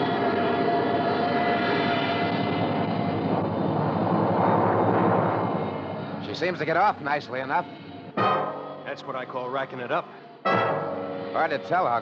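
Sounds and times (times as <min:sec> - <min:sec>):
jet engine roaring: 0:00.0 - 0:09.5
high whine: 0:00.0 - 0:12.0.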